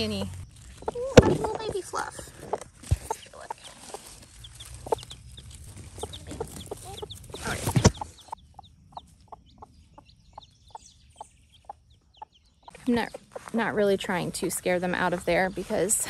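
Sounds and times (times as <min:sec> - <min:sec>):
leaves rustling: 0:00.0 - 0:08.4
chick peeping: 0:00.0 - 0:15.7
hen clucking softly: 0:06.0 - 0:12.9.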